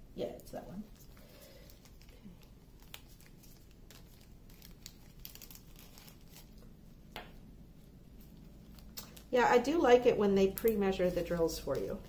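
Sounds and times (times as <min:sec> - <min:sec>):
plastic bag crinkling: 0:00.9 - 0:06.9, 0:08.3 - 0:09.9.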